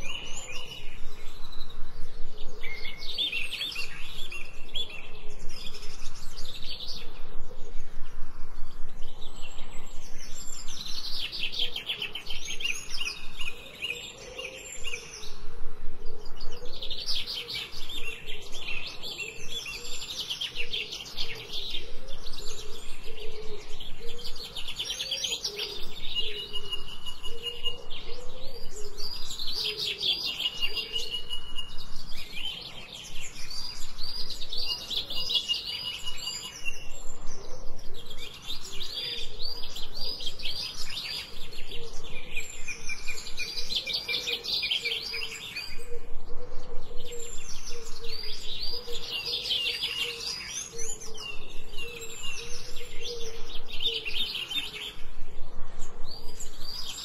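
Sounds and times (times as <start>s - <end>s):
songbirds trilling and chirping: 0.0s - 57.0s.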